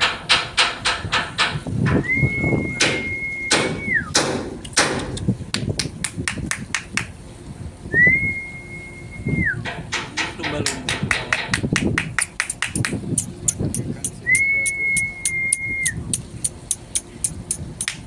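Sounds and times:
rapid sharp knocks: 0.0s - 2.0s, 2.8s - 5.2s, 9.7s - 13.0s
sliding whistled note: 2.0s - 4.2s, 7.9s - 9.6s, 14.2s - 16.0s.

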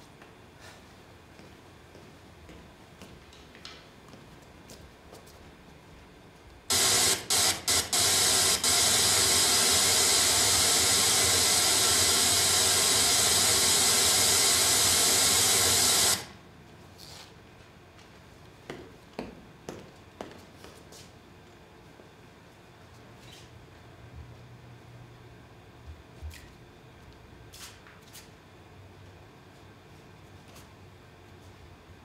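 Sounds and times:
television static hiss: 6.7s - 16.4s.

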